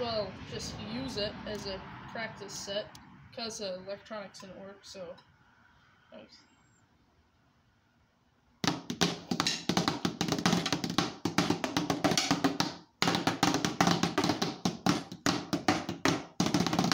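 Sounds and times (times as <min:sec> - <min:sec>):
drumsticks tapping on pads: 0:08.6 - 0:16.9.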